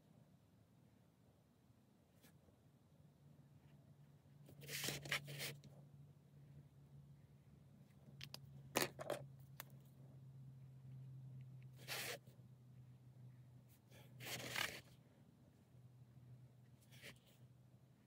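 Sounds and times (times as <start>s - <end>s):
steady low hum: 0.0s - 18.0s
paper and pens scratching: 4.5s - 5.7s, 11.8s - 12.3s, 13.9s - 15.0s, 16.8s - 17.4s.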